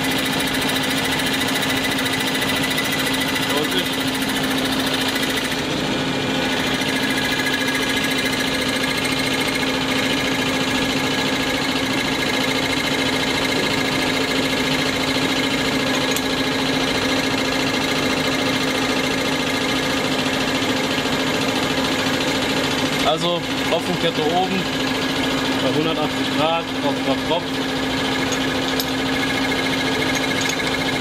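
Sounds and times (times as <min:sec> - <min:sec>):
test bench mechanical hum: 0:00.0 - 0:31.0.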